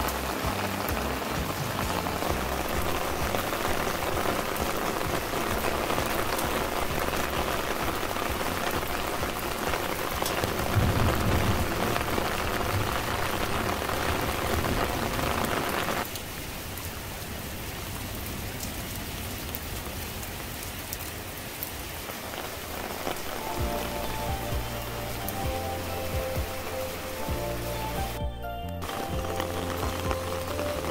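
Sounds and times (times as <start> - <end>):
soft background music: 0.0 - 13.0, 23.0 - 30.9
rain falling on plants: 0.0 - 30.9.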